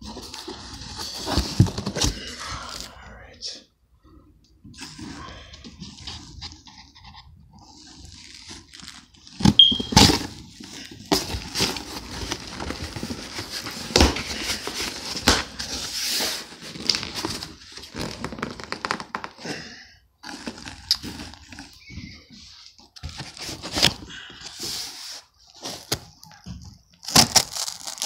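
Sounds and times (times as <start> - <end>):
cardboard rustling and scraping: 0.0 - 2.4, 4.7 - 19.0, 20.3 - 26.1
packing tape ripping: 27.0 - 28.0.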